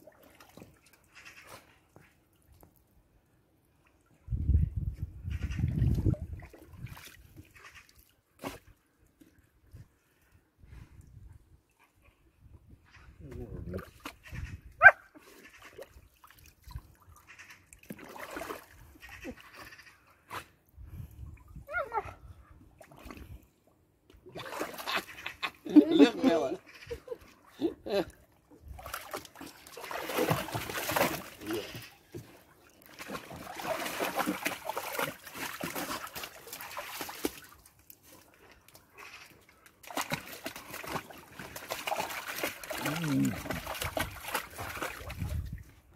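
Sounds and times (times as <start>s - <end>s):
water splashing in a pool: 0.0s - 4.3s, 5.3s - 10.1s, 15.1s - 22.0s, 22.6s - 45.9s
dog yelp: 14.8s - 15.1s.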